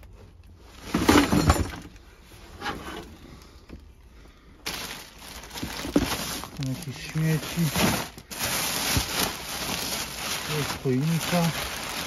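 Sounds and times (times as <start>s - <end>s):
junk clattering underfoot: 0.8s - 2.0s, 4.7s - 6.7s
junk rattling: 0.8s - 2.0s.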